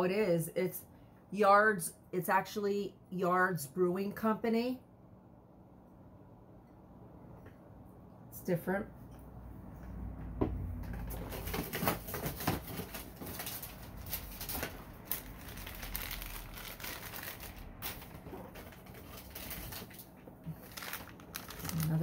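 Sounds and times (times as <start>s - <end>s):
newspaper rustling and crinkling: 10.9s - 22.0s.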